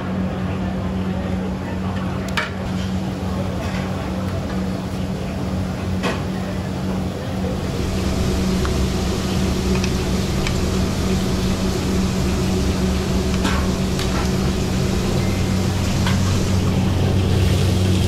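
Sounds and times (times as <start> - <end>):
kitchen machinery hum: 0.0 - 18.0.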